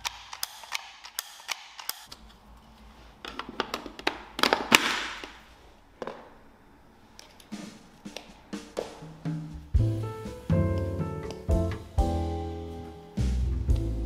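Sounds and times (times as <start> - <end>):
plastic gadget clicks and knocks: 3.2 - 5.4.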